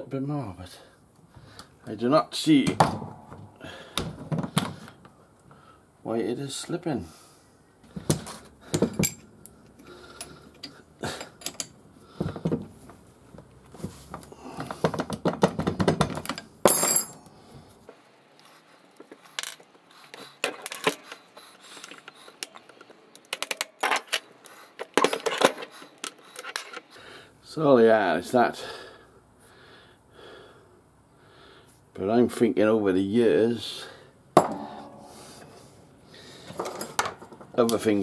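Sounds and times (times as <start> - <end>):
metal parts clinking and rattling: 8.8 - 9.3, 10.2 - 11.8, 14.9 - 17.3, 21.8 - 26.9, 36.5 - 37.6.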